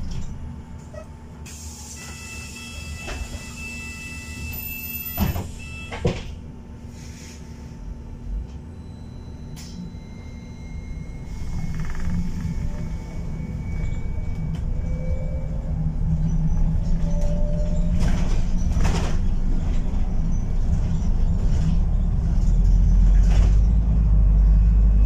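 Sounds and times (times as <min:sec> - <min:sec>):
bus drivetrain rumble: 0:00.0 - 0:25.0.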